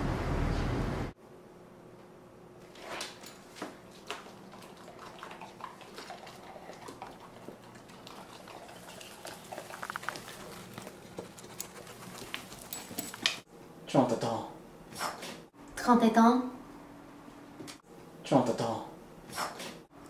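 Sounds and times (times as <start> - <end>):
dog crunching dry food: 7.8 - 13.4
collar tags clinking: 8.8 - 13.4.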